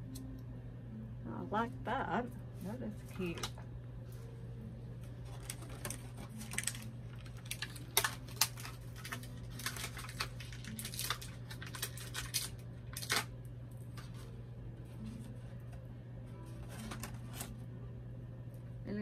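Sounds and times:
steady low hum: 0.0s - 19.0s
toy packaging crinkling: 5.2s - 13.3s.

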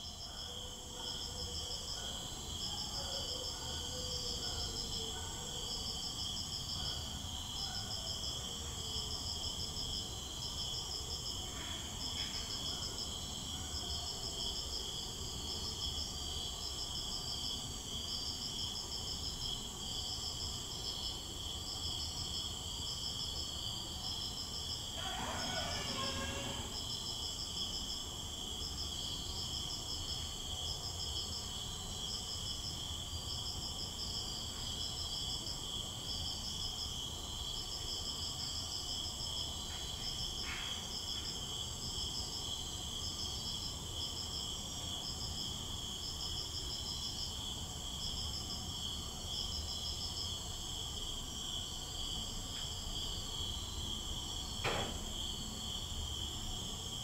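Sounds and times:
insects shrilling and chirping: 0.0s - 54.6s
single bang: 54.6s - 55.2s.

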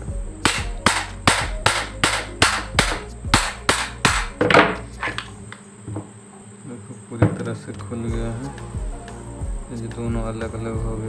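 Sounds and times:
sharp strikes on metal housing: 0.4s - 5.0s.

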